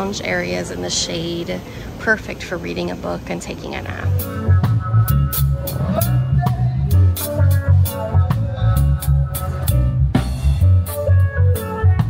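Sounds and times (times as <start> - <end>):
drum kit beat: 3.8 - 12.0
electric bass guitar: 3.8 - 12.0.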